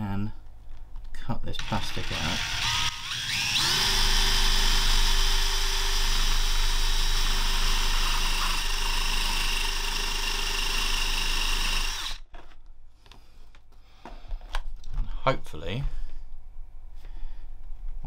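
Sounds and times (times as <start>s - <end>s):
cordless drill motor whine: 1.6s - 12.2s.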